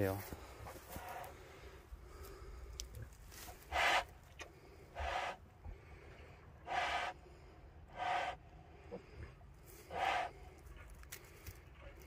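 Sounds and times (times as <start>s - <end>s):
pig grunting: 3.7s - 4.1s, 9.9s - 10.4s.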